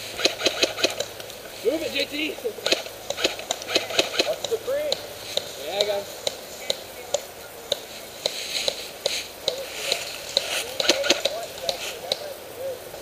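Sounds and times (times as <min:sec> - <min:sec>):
airsoft gun shots: 0:00.2 - 0:01.1, 0:02.6 - 0:04.6.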